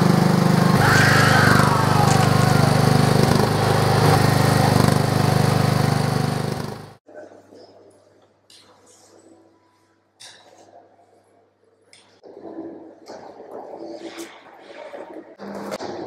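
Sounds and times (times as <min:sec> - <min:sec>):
lawn mower engine running: 0:00.0 - 0:07.0.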